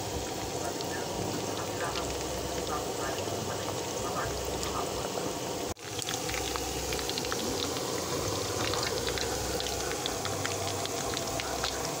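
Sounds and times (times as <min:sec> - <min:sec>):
food deep-frying in hot oil: 0:00.0 - 0:12.0.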